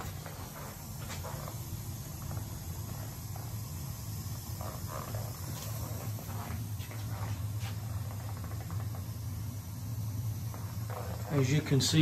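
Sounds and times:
boiler humming: 0:00.0 - 0:12.0
faint clicks and scuffs: 0:04.8 - 0:09.0.

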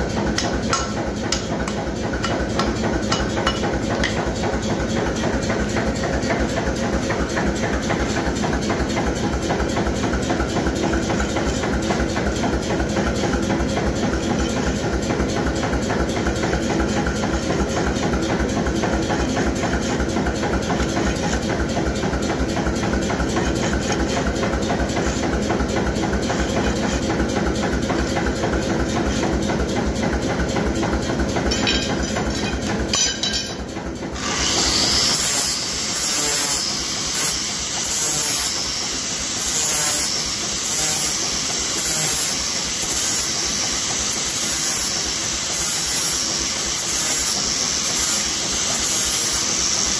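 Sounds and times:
angle grinder whining: 0:34.1 - 0:49.9.

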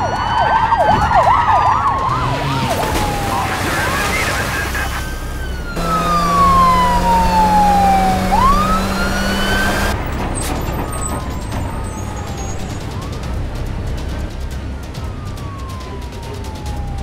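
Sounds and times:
police siren wailing: 0:00.0 - 0:10.0, 0:10.8 - 0:17.0
car engine humming: 0:05.1 - 0:14.6.

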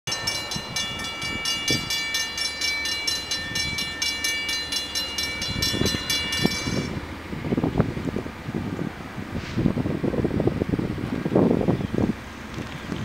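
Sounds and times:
crossing warning bell ringing: 0:00.1 - 0:07.6.

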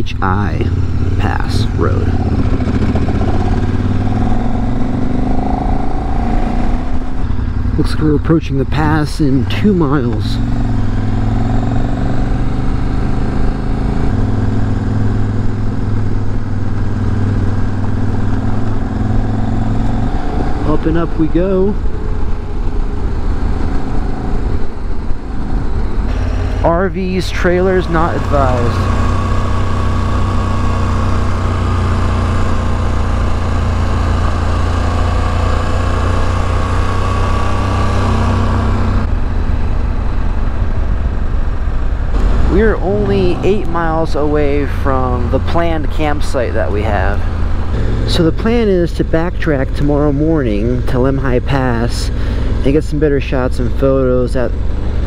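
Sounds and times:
road and wind noise: 0:00.0 - 0:55.0
motorcycle engine running: 0:00.2 - 0:55.0.

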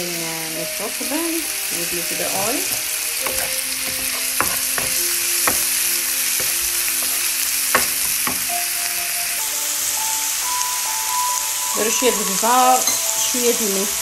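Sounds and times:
mushrooms sizzling in oil: 0:00.0 - 0:14.0
wooden spatula knocking pan: 0:02.4 - 0:08.6.

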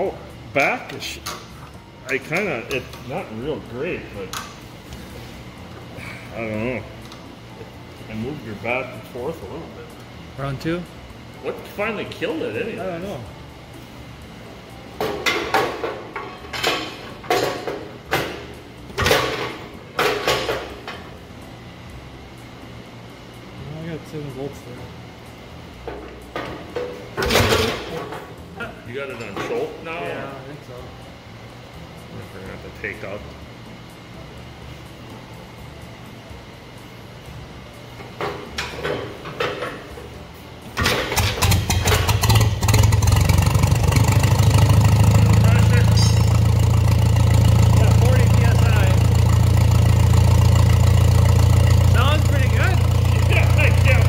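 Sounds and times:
tractor engine starting and idling: 0:40.8 - 0:54.0.

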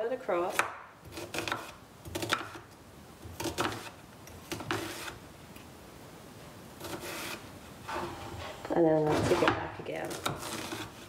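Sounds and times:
knife slicing onion on board: 0:00.5 - 0:02.6, 0:03.2 - 0:05.2, 0:06.8 - 0:07.4, 0:09.3 - 0:11.0.

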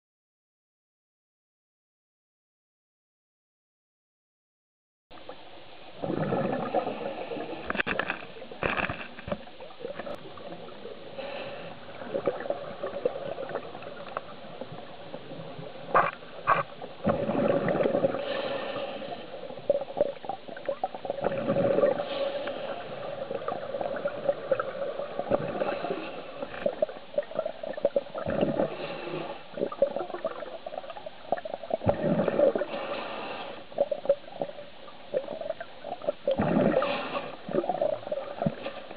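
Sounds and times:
exhaled bubbles gurgling: 0:05.3 - 0:38.9
steady hiss: 0:09.2 - 0:31.8, 0:32.5 - 0:38.9.

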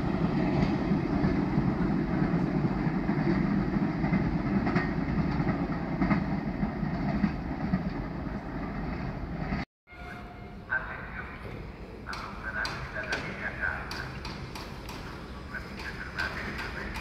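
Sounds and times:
train wheels rumbling on rail: 0:00.0 - 0:17.0
faint rail clicks: 0:12.0 - 0:17.0.

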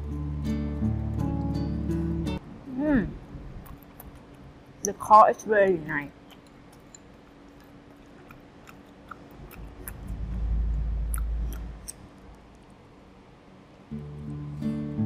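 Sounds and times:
chewing with wet mouth clicks: 0:03.6 - 0:05.0, 0:06.1 - 0:12.6
low muffled rumble: 0:09.4 - 0:12.9.

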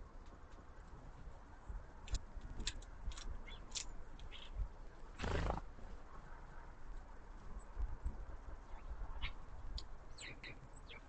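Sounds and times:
sparrow chirps and clicks: 0:02.0 - 0:04.6, 0:08.6 - 0:11.0
bird wingbeats whirr: 0:05.1 - 0:05.8.

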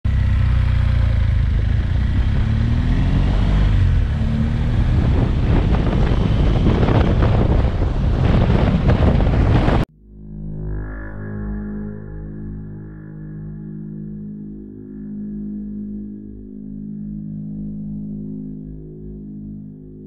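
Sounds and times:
motorcycle engine running: 0:00.1 - 0:09.9
wind buffeting on microphone: 0:02.8 - 0:09.9
music: 0:09.9 - 0:20.0.

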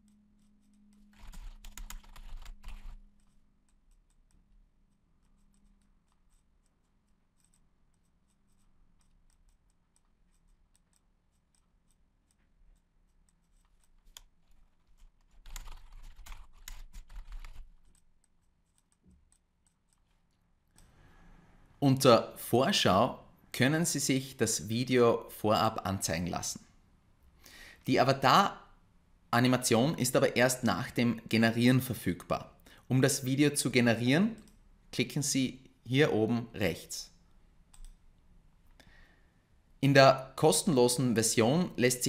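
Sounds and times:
computer keyboard typing: 0:00.0 - 0:20.9, 0:37.7 - 0:38.0.

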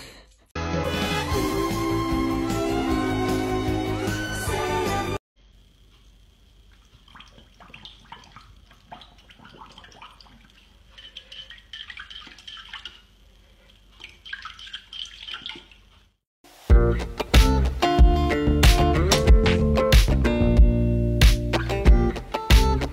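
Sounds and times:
dog splashing water in bowl: 0:06.8 - 0:13.1, 0:14.0 - 0:15.9.

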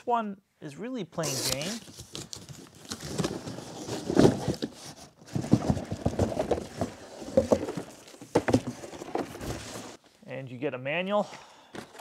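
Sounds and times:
cardboard box knocks and scrapes: 0:03.2 - 0:10.0.

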